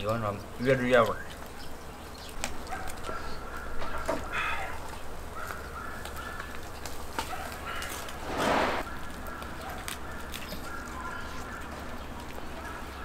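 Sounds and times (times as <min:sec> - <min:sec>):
birds calling: 0:00.0 - 0:13.0
breathy rush of noise: 0:08.0 - 0:08.9.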